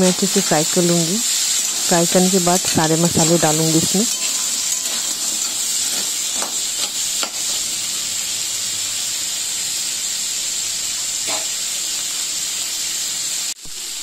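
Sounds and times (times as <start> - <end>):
food sizzling in hot oil: 0.0 - 14.0
spatula scraping and knocking pan: 1.2 - 7.8, 11.2 - 12.0.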